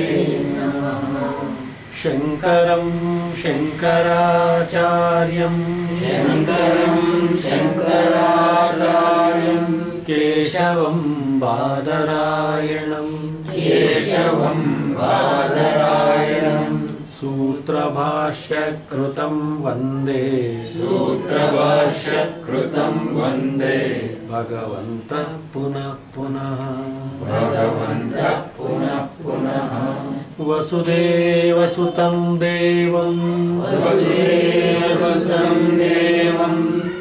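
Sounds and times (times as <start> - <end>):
man and woman chanting: 0.0 - 37.0.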